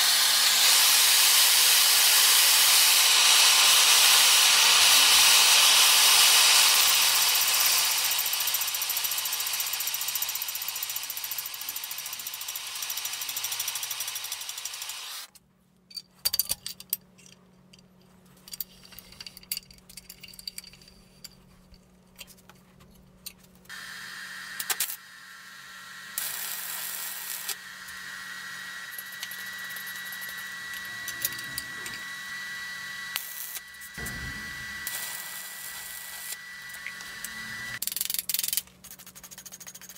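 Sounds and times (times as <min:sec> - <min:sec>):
torch flame hissing: 0:00.0 - 0:09.5
machine hum with high whine: 0:20.8 - 0:37.8.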